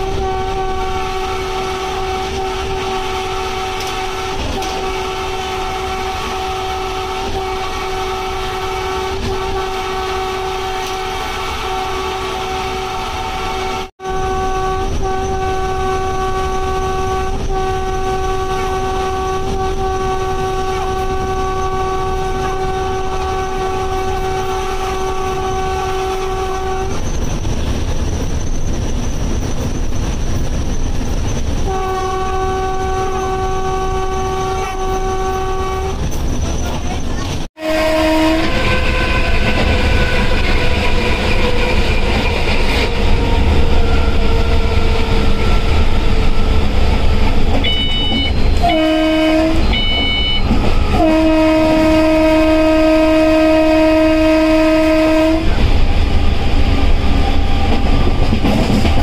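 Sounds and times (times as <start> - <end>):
locomotive horn blasts: 0.0 - 27.0, 31.7 - 36.1, 37.6 - 58.1
train rumbling at speed: 0.0 - 59.0
short high beeps: 47.6 - 48.6, 49.6 - 50.5.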